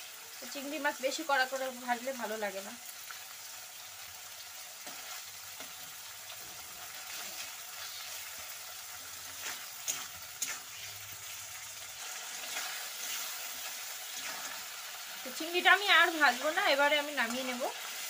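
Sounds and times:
prawns sizzling in oil: 0.0 - 18.0
metal spatula scraping pan: 9.4 - 14.6.

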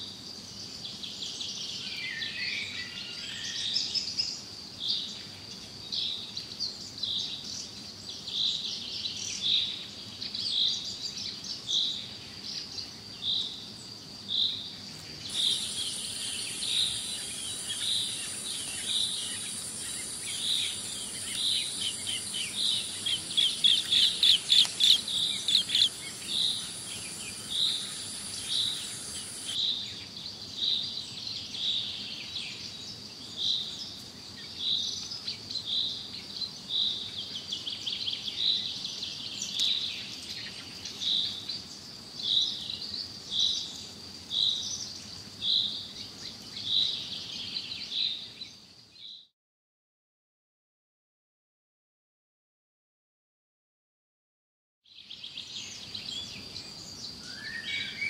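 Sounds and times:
high insect buzz: 13.5 - 29.6
bird chirping: 15.2 - 29.6.

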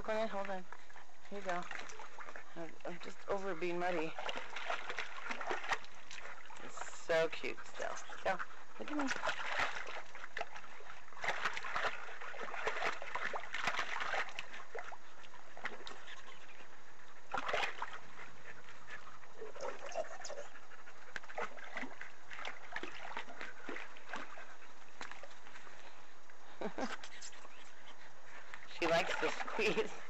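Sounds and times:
dog splashing in water: 3.6 - 16.4, 17.3 - 18.3, 21.2 - 25.4, 28.8 - 30.0.

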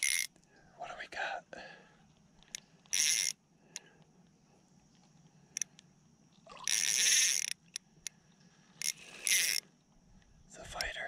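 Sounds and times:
fishing reel reeling: 0.0 - 0.3, 2.9 - 3.4, 6.5 - 7.8, 8.6 - 9.7
fishing reel clicks: 0.0 - 0.4, 2.5 - 3.8, 6.5 - 8.2, 8.8 - 9.7.

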